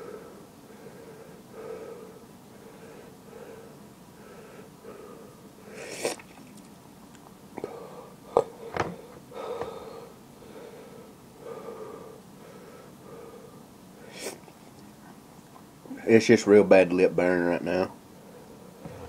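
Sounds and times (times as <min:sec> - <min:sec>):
man breathing hard: 0:00.0 - 0:05.9, 0:07.6 - 0:14.3
sharp hissing breath: 0:09.4 - 0:14.4.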